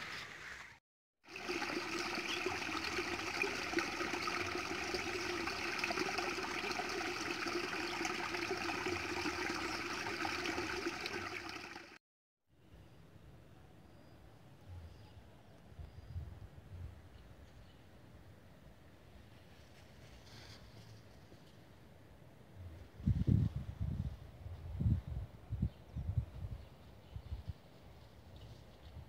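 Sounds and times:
water trickling into a pool: 1.2 - 12.0.

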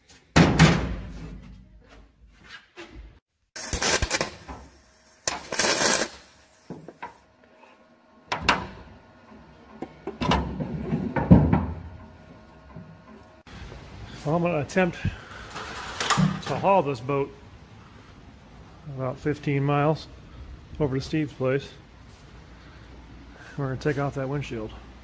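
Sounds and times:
welding bursts: 3.6 - 6.7.

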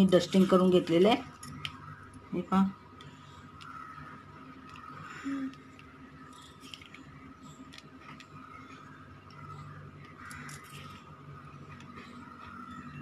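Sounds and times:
faint steady hum: 0.0 - 13.0
bangles clinking: 10.3 - 11.0.

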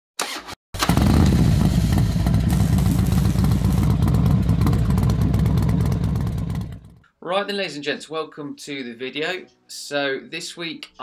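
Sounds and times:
motorcycle engine running: 0.8 - 7.0.

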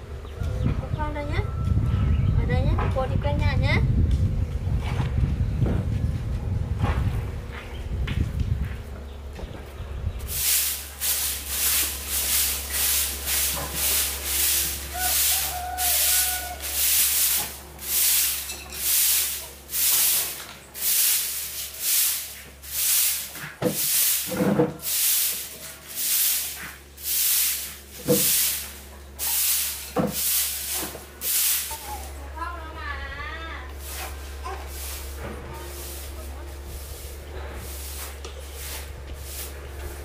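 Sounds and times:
broom sweeping concrete floor: 10.2 - 32.6, 33.6 - 40.0.

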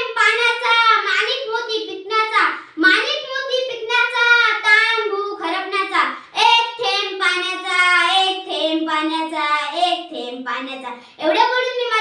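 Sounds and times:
girl singing unaccompanied: 0.0 - 12.0
girl breathing: 2.6 - 2.8, 6.1 - 6.4, 10.9 - 11.2.

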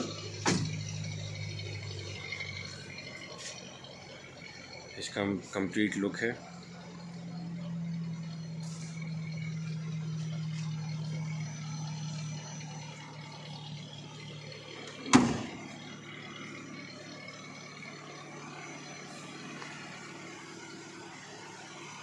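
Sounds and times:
car door slamming: 0.4 - 0.8, 15.0 - 15.7.

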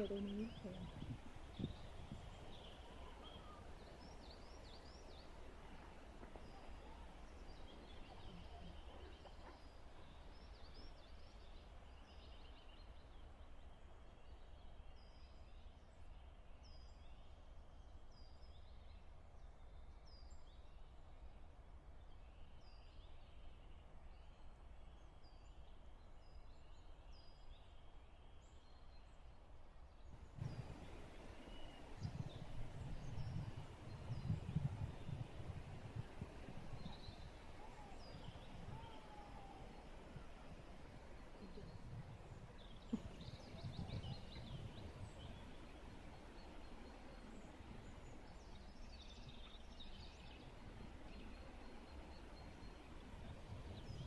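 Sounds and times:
distant birds chirping: 30.1 - 54.0.

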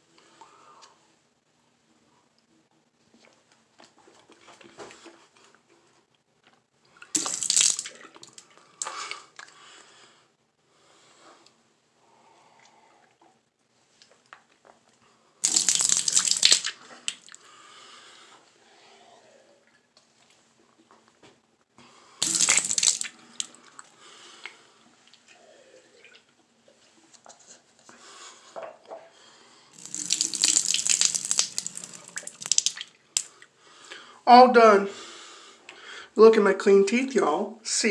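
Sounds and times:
spitting into sink: 7.1 - 9.2, 22.2 - 23.9.

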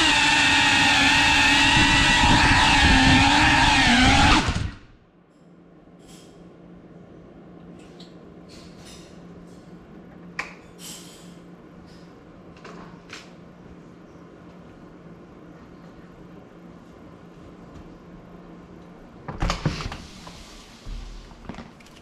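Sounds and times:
drone motors whining: 0.0 - 5.0.

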